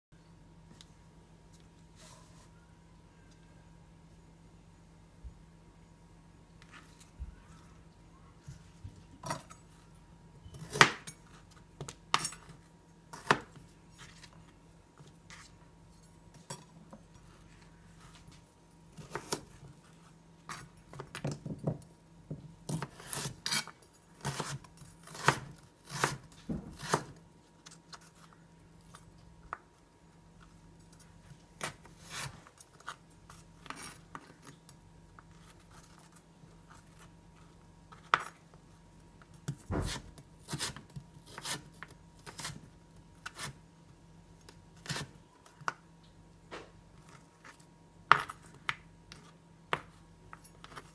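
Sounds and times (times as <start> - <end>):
knife chopping on cutting board: 24.2 - 27.2, 39.5 - 41.6.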